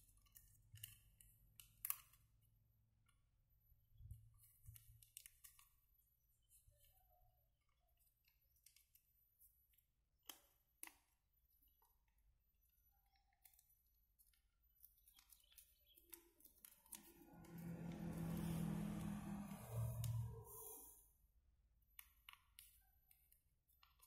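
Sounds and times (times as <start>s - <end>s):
rushing sound with low tones: 16.9s - 21.0s.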